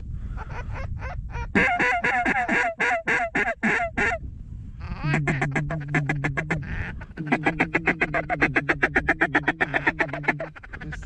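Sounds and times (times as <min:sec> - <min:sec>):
duck quacking: 0:01.6 - 0:04.2, 0:05.0 - 0:11.0.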